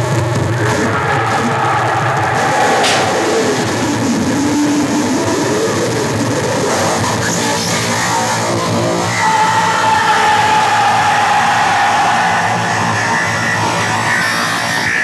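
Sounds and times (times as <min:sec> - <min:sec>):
dense distorted noise: 0:00.0 - 0:14.9.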